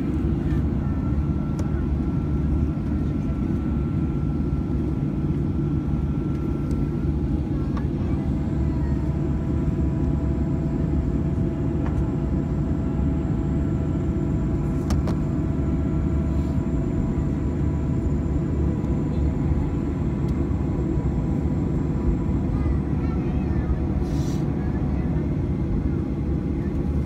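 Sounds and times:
jet engine cabin rumble: 0.0s - 27.0s.

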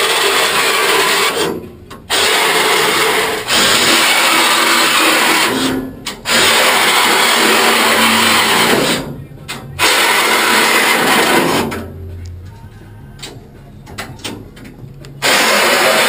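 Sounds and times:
reciprocating saw cutting steel: 0.0s - 9.2s, 9.8s - 11.8s, 15.2s - 16.0s.

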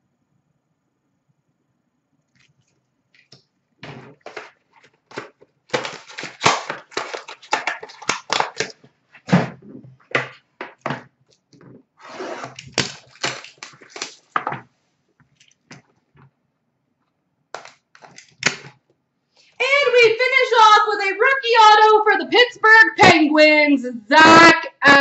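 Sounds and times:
card packaging crackling and tearing: 3.2s - 9.4s, 12.4s - 14.4s, 17.6s - 18.8s.

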